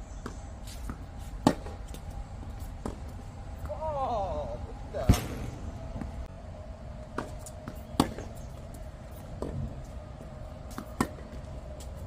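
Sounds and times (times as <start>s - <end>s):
racket strikes and ball bounces: 0.2s - 3.8s, 7.0s - 9.9s, 10.7s - 12.0s.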